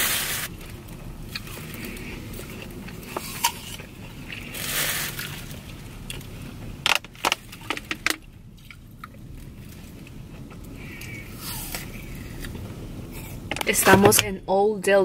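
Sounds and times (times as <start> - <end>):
low rumble inside car: 0.0 - 15.0.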